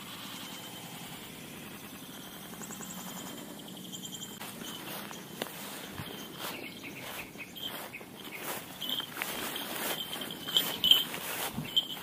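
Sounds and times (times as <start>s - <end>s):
insects chirping: 0.2s - 12.0s
footsteps through long grass: 4.4s - 12.0s.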